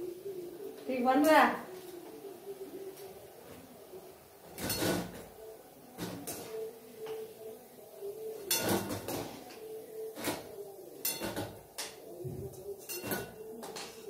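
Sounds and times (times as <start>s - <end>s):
steel spoon scraping a pan: 4.5s - 5.4s, 6.0s - 6.8s, 8.3s - 14.0s.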